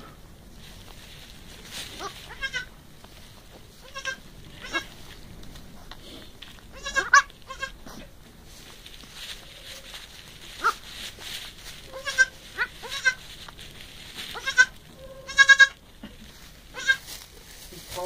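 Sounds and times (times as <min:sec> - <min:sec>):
goat kids bleating: 0:01.9 - 0:02.7, 0:03.7 - 0:05.1, 0:06.7 - 0:08.0, 0:09.7 - 0:10.9, 0:11.7 - 0:13.3, 0:14.2 - 0:16.1, 0:16.7 - 0:17.1.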